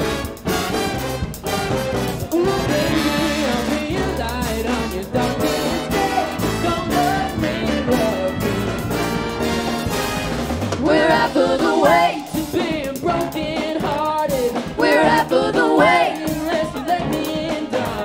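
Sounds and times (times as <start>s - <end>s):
big band playing: 0.0s - 18.0s
person singing: 1.7s - 8.9s, 10.9s - 18.0s.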